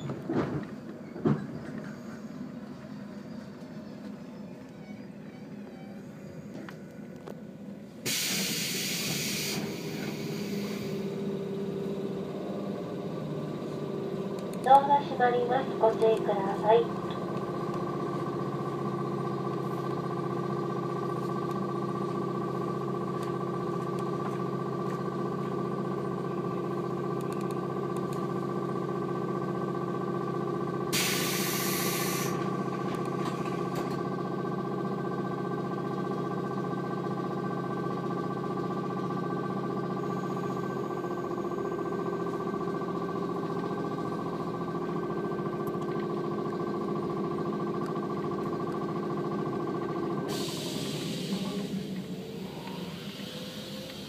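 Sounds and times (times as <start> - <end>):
electric train hum: 0.0 - 54.0
compressed-air hiss: 31.0 - 32.4.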